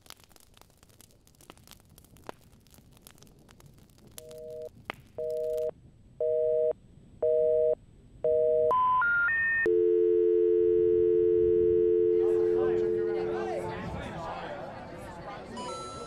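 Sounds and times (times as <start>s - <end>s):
steady dial tone: 4.2s - 13.4s
telephone busy signal beeps: 4.5s - 13.3s.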